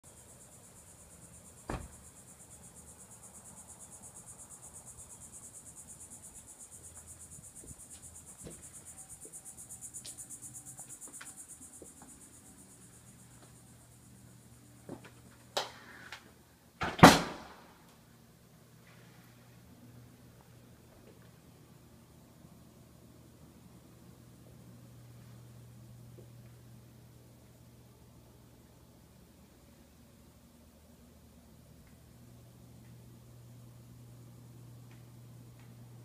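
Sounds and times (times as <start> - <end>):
insects trilling: 0.1 - 16.0.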